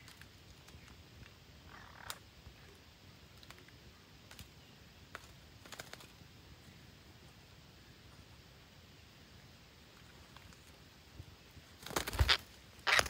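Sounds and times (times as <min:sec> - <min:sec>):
quiet forest background: 0:00.0 - 0:13.0
parrots clicking on branches: 0:05.1 - 0:06.2.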